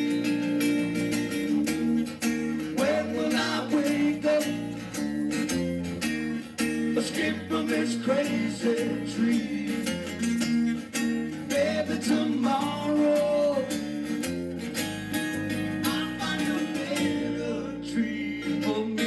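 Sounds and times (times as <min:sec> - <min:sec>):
hand shaker beat: 0:00.0 - 0:17.2
acoustic guitars strumming: 0:00.0 - 0:19.0
man singing into microphone: 0:02.6 - 0:04.9, 0:07.0 - 0:10.2, 0:11.5 - 0:13.9, 0:15.8 - 0:19.0.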